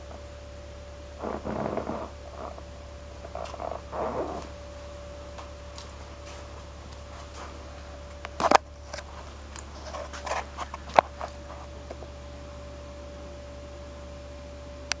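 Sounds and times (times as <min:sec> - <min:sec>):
low electrical hum: 0:00.0 - 0:15.0
faint steady tone: 0:10.6 - 0:15.0.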